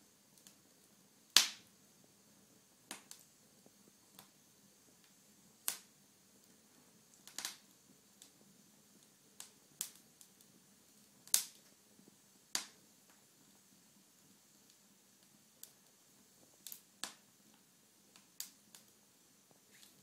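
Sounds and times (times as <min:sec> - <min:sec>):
faint steady hiss: 0:00.0 - 0:20.0
fire crackling and popping: 0:00.0 - 0:20.0.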